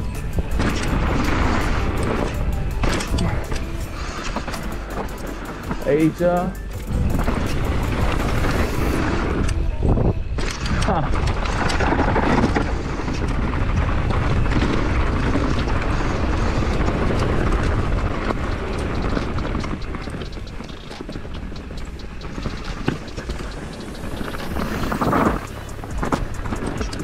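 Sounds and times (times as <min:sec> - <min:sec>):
bike tyre noise on rocky trail: 0:00.0 - 0:27.0.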